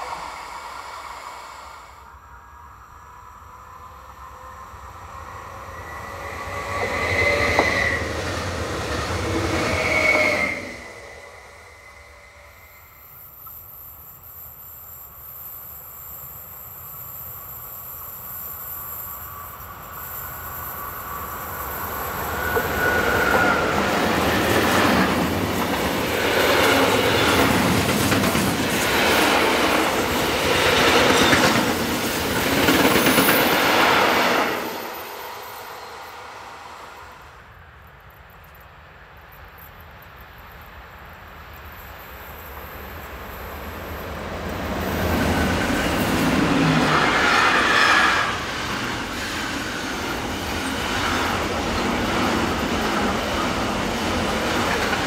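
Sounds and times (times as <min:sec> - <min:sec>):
freight train passing: 0:00.0 - 0:55.0
wheel squeal: 0:05.0 - 0:13.2, 0:21.6 - 0:27.6.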